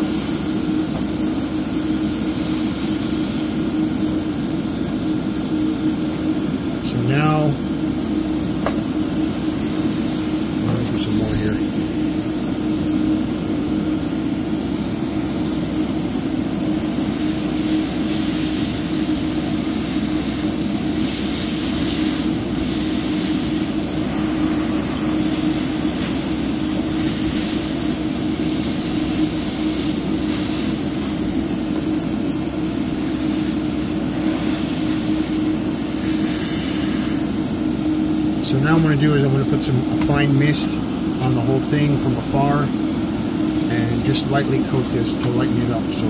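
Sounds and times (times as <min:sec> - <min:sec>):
airbrush hissing: 0:00.0 - 0:46.0
electric motor hum: 0:06.8 - 0:12.5.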